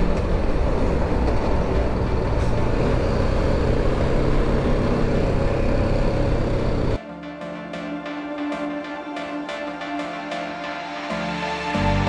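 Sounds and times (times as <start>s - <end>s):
road and wind noise: 0.0s - 7.0s
vehicle engine running: 0.0s - 7.0s.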